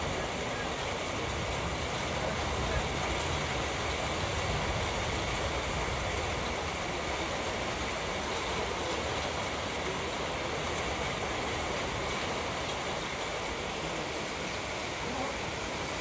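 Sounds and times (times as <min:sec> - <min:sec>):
rain falling steadily: 0:00.0 - 0:16.0.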